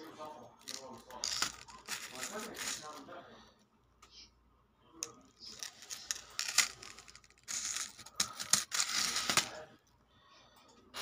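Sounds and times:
bangles clinking and jingling: 0.6 - 3.0, 5.4 - 9.4.

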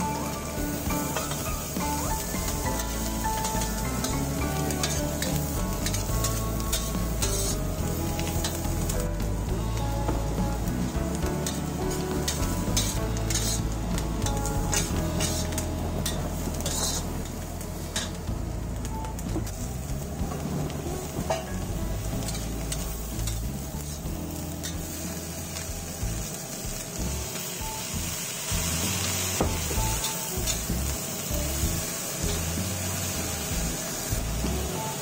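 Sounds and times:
food sizzling in a wok: 0.0 - 35.0
metal spatula scraping pan: 12.2 - 17.2.

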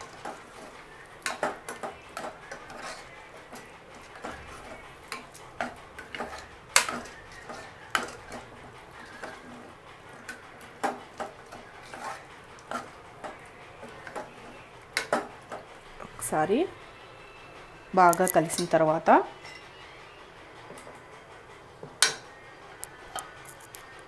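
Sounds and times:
spoon scraping and knocking pot: 0.0 - 15.7
spoon clanking on pot: 1.2 - 9.5, 10.2 - 15.7, 18.1 - 19.8, 22.0 - 22.3.

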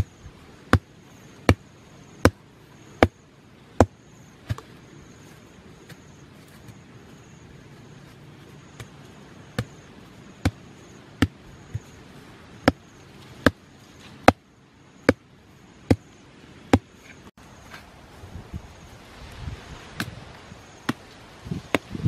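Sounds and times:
mallet knocking wooden stake: 3.8 - 4.6, 10.4 - 10.6.

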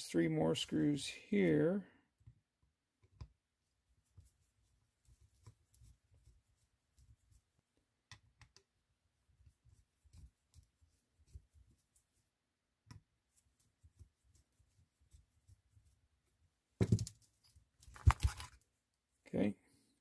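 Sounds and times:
plastic parts clattering: 17.9 - 18.6.

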